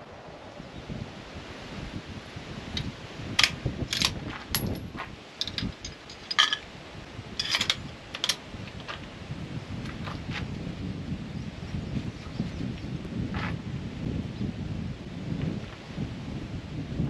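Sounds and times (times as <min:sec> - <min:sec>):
rifle bolt metallic clicks: 0:03.4 - 0:04.8, 0:05.4 - 0:06.6, 0:07.4 - 0:08.4.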